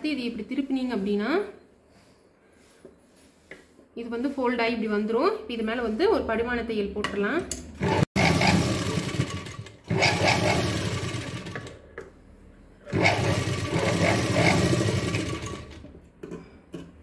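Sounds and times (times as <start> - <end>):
sewing machine stitching: 7.8 - 11.8, 12.8 - 15.9.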